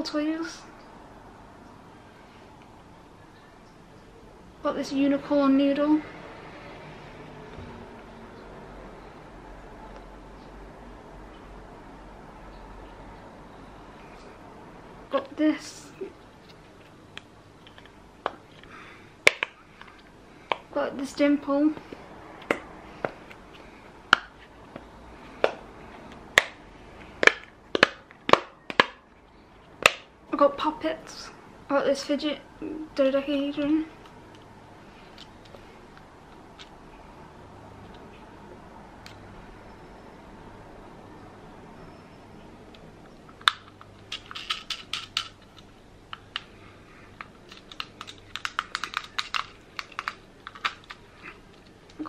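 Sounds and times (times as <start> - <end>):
plastic fidget toy clicking: 47.5 - 51.0.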